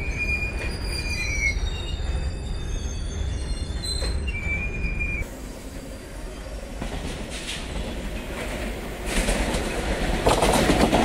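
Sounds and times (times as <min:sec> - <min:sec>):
high wheel squeals: 0:00.0 - 0:05.3
wagons rumbling on rails: 0:00.0 - 0:11.0.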